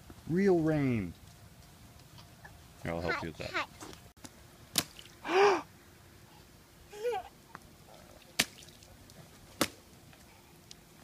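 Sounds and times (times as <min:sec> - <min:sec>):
toddler babbling: 0:06.9 - 0:07.4
boots splashing in puddle: 0:08.3 - 0:08.9.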